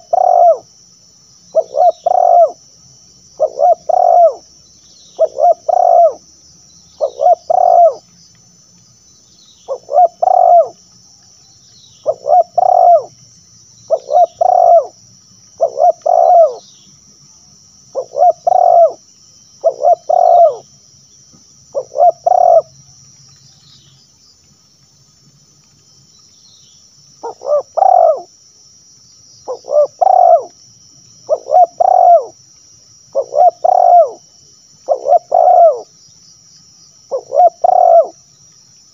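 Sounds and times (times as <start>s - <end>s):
dove cooing: 0.0s - 0.7s, 1.5s - 2.6s, 3.4s - 4.5s, 5.2s - 6.2s, 7.0s - 8.0s, 9.7s - 10.8s, 12.0s - 13.2s, 13.9s - 15.0s, 15.6s - 16.6s, 17.9s - 19.0s, 19.6s - 20.7s, 21.7s - 22.7s, 27.2s - 28.3s, 29.5s - 30.6s, 31.2s - 32.4s, 33.1s - 35.9s, 37.1s - 38.2s.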